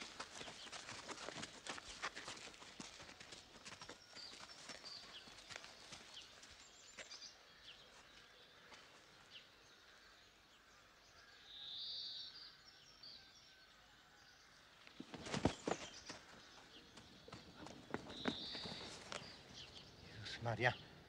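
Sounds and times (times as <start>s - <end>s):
small birds chirping: 0.0s - 21.0s
loud high bird call: 17.9s - 19.4s.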